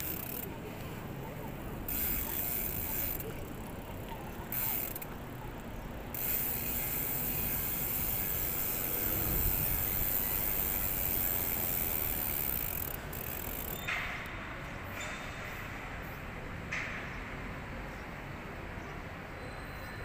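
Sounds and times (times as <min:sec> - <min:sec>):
bicycle freewheel ticking: 0:00.0 - 0:14.3
low rumble of road noise: 0:00.0 - 0:19.4.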